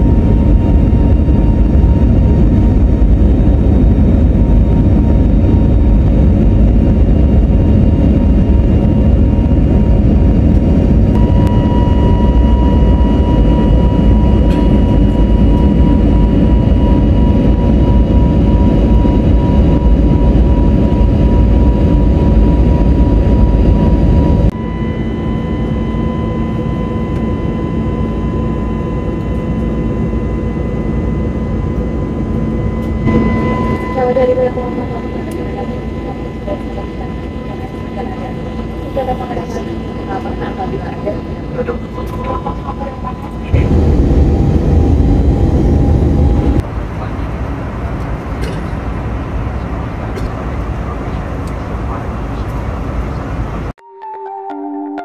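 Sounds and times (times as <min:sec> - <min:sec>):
jet engine whine: 0:00.0 - 0:53.8
jet engine rushing noise: 0:25.5 - 0:53.8.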